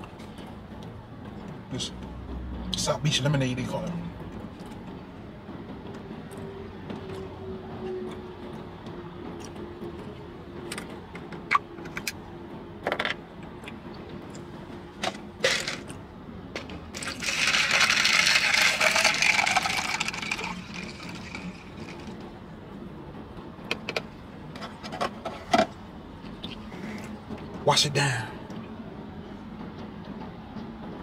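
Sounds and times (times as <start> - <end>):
liquid pouring over ice: 17.0 - 22.2.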